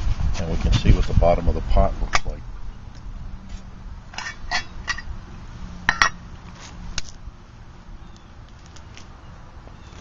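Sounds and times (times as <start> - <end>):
metal pot clanking: 5.9 - 6.2.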